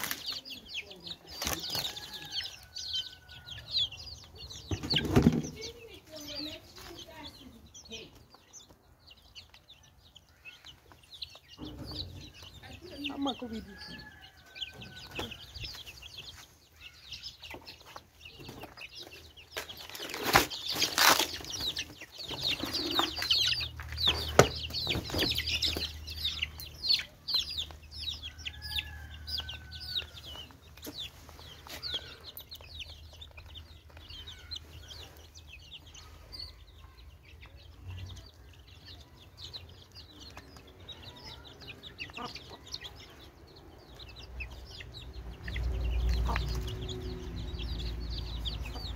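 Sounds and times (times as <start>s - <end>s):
chicks peeping: 0.0s - 48.9s
hen clucking: 39.5s - 48.9s.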